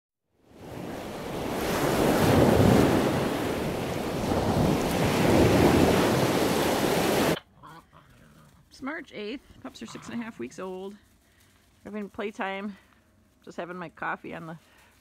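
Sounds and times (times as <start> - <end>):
ocean waves washing: 0.4 - 7.4.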